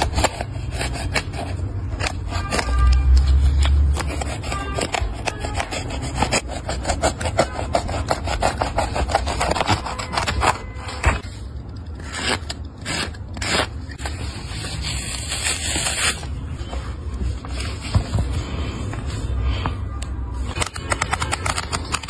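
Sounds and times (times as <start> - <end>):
knife sawing through glued seam: 4.0 - 10.5.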